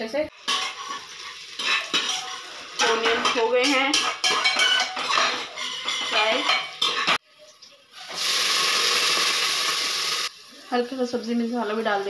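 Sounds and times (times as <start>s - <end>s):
loud frying sizzle: 0.3s - 12.0s
spoon scraping a pot: 0.4s - 7.2s.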